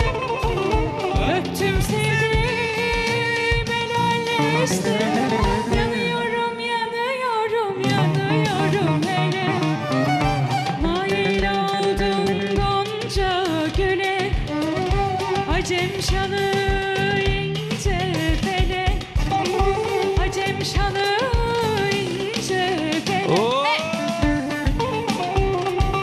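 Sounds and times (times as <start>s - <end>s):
steady drum beat: 0.0s - 6.4s, 7.8s - 26.0s
woman singing folk song: 0.0s - 23.6s
live band: 0.0s - 26.0s.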